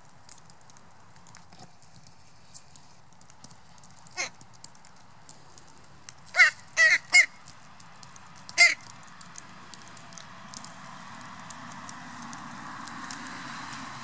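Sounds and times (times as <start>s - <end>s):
beaks pecking seeds: 0.7s - 13.6s
crows cawing: 4.1s - 4.4s, 6.3s - 7.5s, 8.4s - 8.9s.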